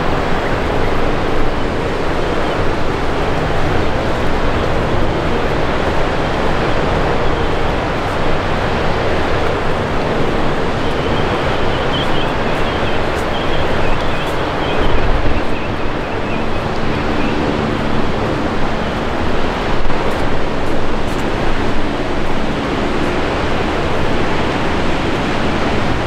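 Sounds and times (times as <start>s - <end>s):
ocean surf breaking: 0.0s - 26.0s
wind on microphone: 0.0s - 26.0s
faint high chirping: 10.7s - 18.2s.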